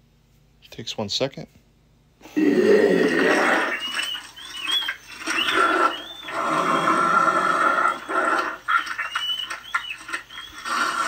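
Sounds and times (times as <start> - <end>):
animatronic growls and screams: 2.2 - 3.9, 5.3 - 8.7, 10.6 - 11.0
short high squeals: 2.8 - 11.0.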